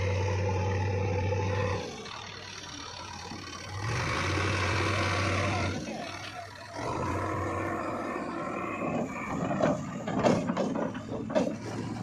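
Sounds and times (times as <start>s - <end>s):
diesel engine running: 0.0s - 12.0s
sharp knocks and rattles: 9.3s - 12.0s.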